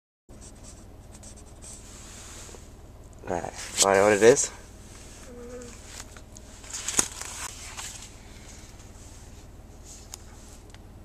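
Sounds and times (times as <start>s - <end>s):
low steady hum: 0.3s - 11.0s
rustling handling noise: 3.5s - 10.7s.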